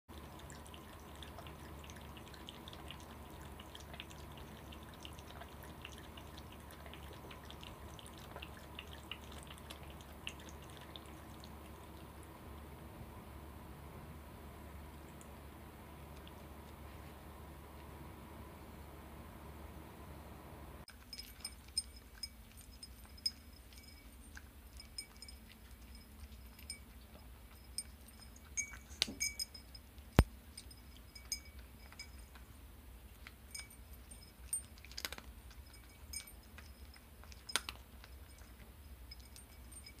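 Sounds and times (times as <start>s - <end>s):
cat crunching dry food: 33.1s - 39.8s.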